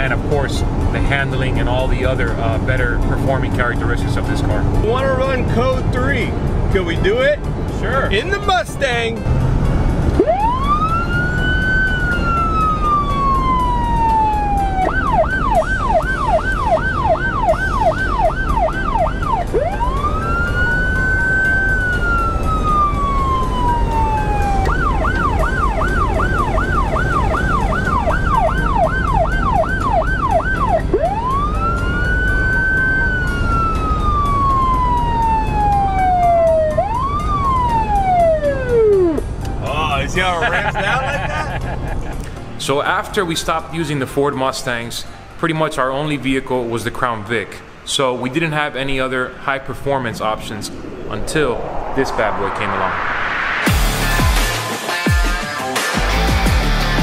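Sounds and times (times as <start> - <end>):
car engine and road noise: 0.0 - 57.0
police siren wail and yelp: 10.1 - 39.3.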